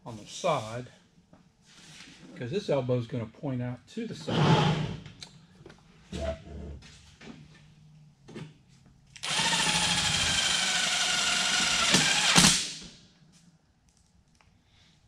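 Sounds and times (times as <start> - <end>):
cordless drill on sheet metal: 9.2 - 12.8.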